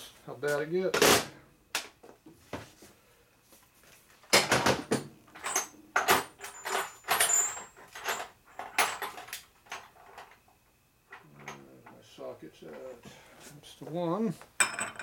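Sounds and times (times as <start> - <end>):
metal tools clattering: 5.4 - 10.3, 14.6 - 15.0.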